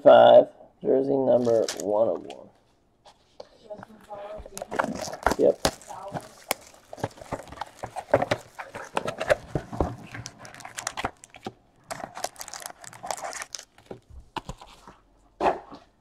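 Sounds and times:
cardboard box being opened: 1.4 - 1.9, 4.5 - 15.0
packaging rustling and crinkling: 1.4 - 2.3, 4.0 - 15.0.

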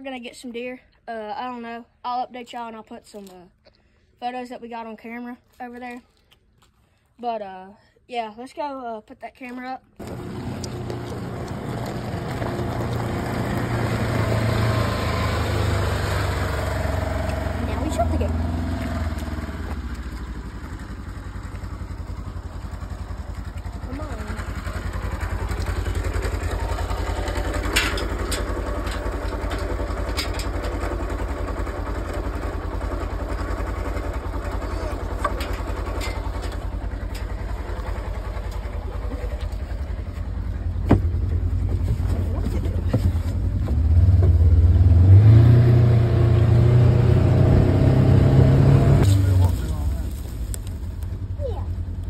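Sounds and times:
utility vehicle engine passing: 10.0 - 51.2.

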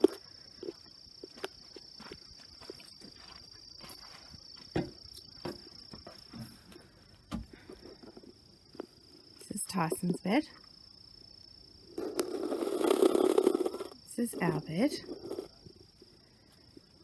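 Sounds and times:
footsteps on steps: 0.0 - 7.8
crickets trilling: 0.0 - 17.0.

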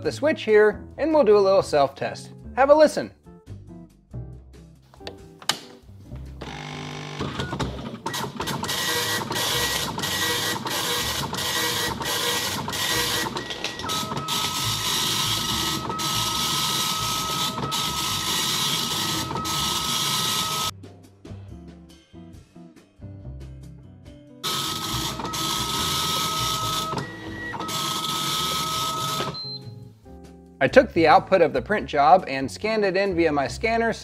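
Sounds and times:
dot matrix printer buzzing: 6.4 - 20.7, 24.4 - 29.5
printer motor whine: 6.4 - 20.7, 24.4 - 29.5.

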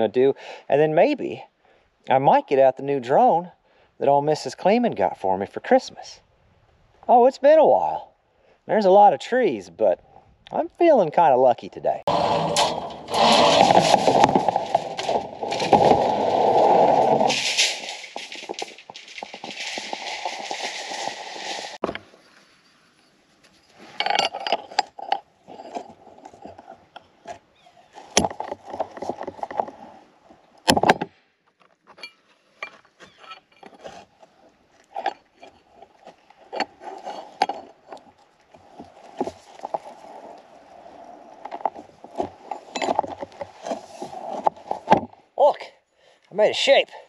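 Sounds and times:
rebar clanking in a bender: 12.1 - 22.1.

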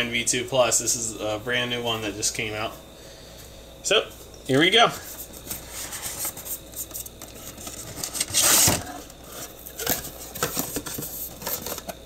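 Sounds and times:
cardboard scrape: 5.4 - 11.9.

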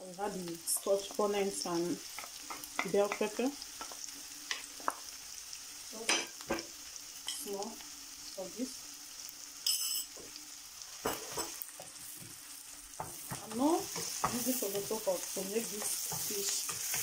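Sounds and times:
onion sizzling in hot oil: 0.0 - 17.0
spoon knocking on pan and bowl: 2.2 - 5.0, 6.1 - 6.7, 11.0 - 12.3, 13.0 - 14.5
wooden spoon scraping pan: 13.0 - 17.0.

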